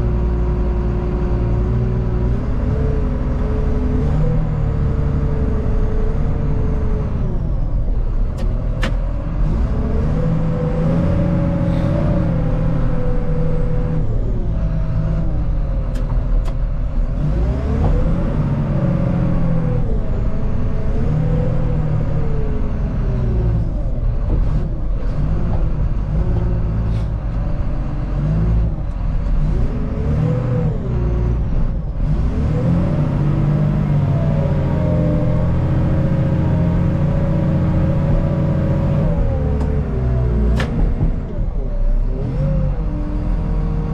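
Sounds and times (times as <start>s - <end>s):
diesel engine revving: 0.0s - 43.9s.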